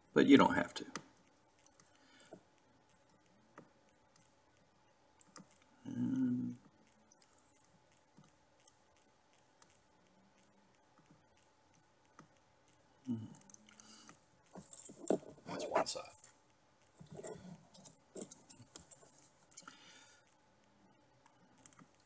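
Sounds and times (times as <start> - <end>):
low vocal murmur: 5.8 - 6.6, 13.1 - 13.4.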